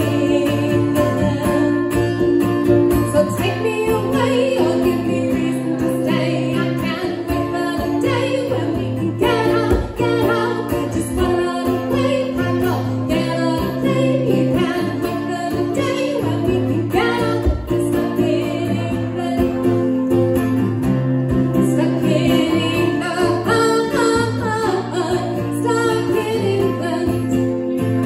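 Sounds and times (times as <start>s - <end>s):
person singing: 0.0s - 2.2s, 3.0s - 20.5s, 21.6s - 28.0s
acoustic guitar strumming: 0.0s - 28.0s
ukulele strumming: 0.0s - 28.0s.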